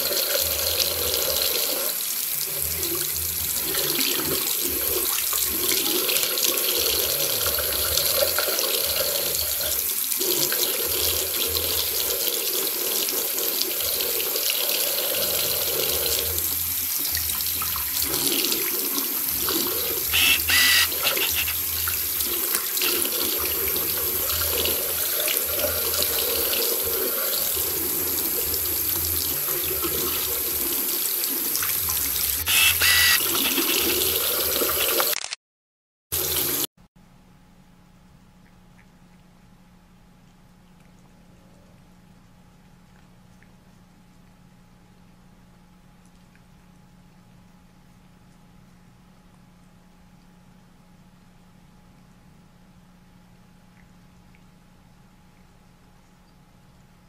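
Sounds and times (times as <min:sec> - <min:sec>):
brief high-pitched sounds: 0:20.1 - 0:21.7, 0:32.4 - 0:33.8.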